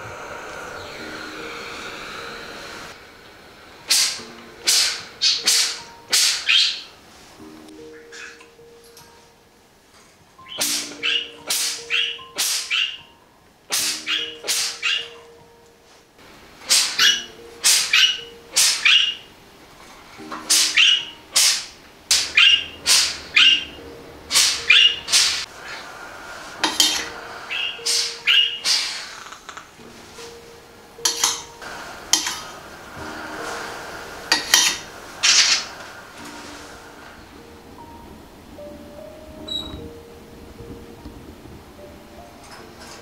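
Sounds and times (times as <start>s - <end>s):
parakeet chirping and squawking: 3.9s - 7.0s, 7.9s - 8.5s, 10.4s - 13.1s, 13.7s - 15.3s, 16.6s - 19.3s, 20.2s - 26.0s, 26.6s - 29.7s, 34.3s - 35.8s.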